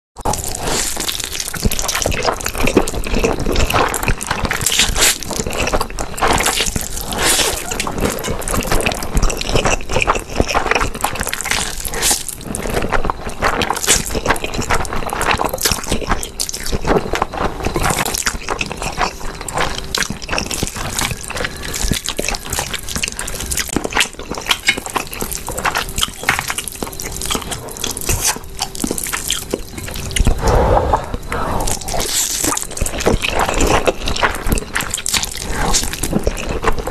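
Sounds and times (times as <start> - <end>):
slurping and chewing noodles: 0.2 - 36.9.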